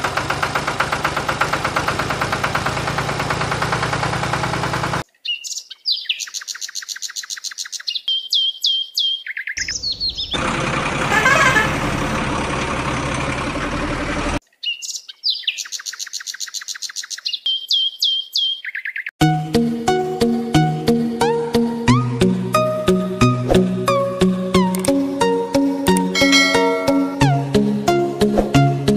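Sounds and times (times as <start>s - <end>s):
falling bird-like chirps: 5.2s - 10.4s.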